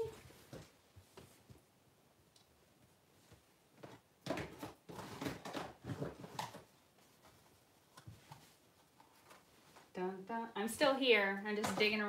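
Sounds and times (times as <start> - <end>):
rummaging through toys: 3.8 - 9.9.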